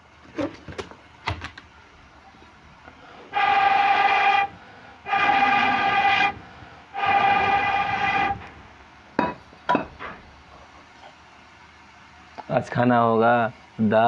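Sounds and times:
short breaths: 0:02.9 - 0:07.3
blowpipe horn-like blasts: 0:03.3 - 0:08.8.

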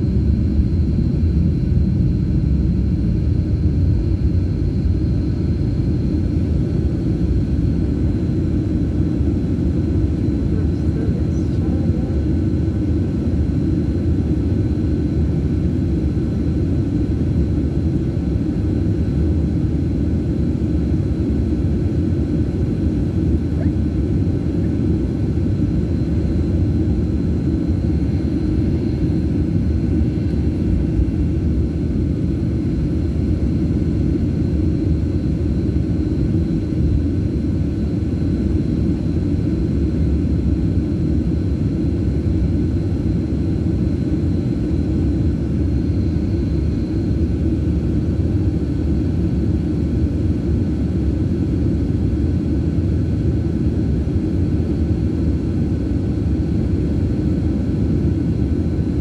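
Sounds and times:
jet engines idling rumble: 0:00.0 - 0:58.8.

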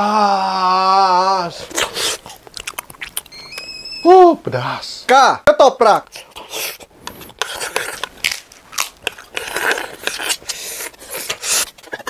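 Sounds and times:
crunchy chewing: 0:01.6 - 0:03.7, 0:06.1 - 0:12.0.

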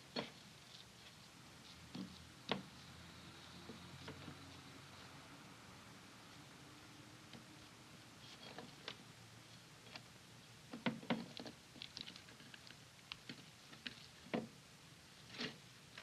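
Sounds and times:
hands squishing raw meat: 0:11.4 - 0:14.1.

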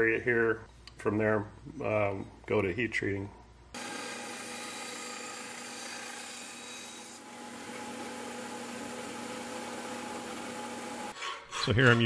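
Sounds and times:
belt sander running: 0:03.8 - 0:06.2, 0:07.2 - 0:11.1.

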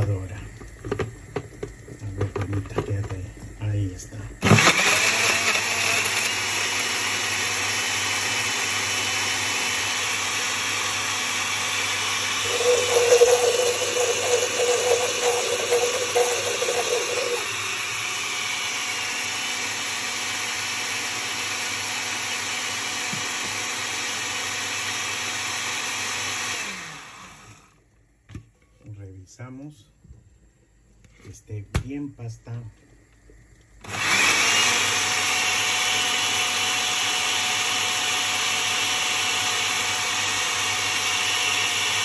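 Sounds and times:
blender running: 0:04.4 - 0:27.8, 0:33.8 - 0:42.0.

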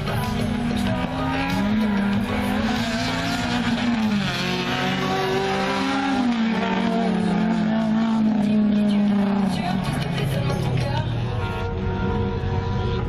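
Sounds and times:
car engine revving hard: 0:00.1 - 0:10.2.

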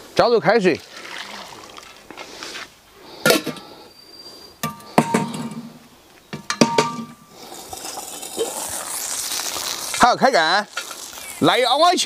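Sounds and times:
metal lid and handles clanging: 0:04.6 - 0:07.2.

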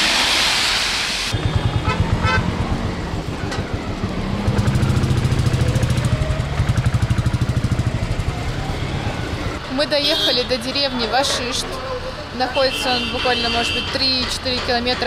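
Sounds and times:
rain hiss: 0:00.0 - 0:01.4
vehicle horn toots: 0:01.3 - 0:02.7, 0:09.9 - 0:10.7, 0:12.5 - 0:14.3
motorcycle engine throbbing: 0:01.3 - 0:10.3.

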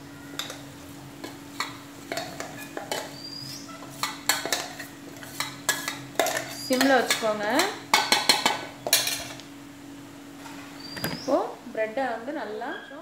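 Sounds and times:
wooden spatula scraping pan: 0:01.2 - 0:07.2
steel bowl knocking on pan: 0:05.8 - 0:09.1.

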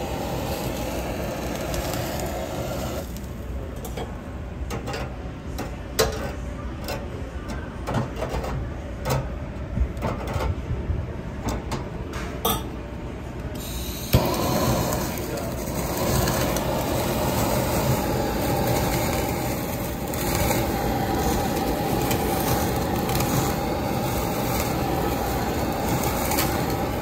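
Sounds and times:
blowtorch hissing: 0:00.0 - 0:03.7, 0:13.6 - 0:27.0.

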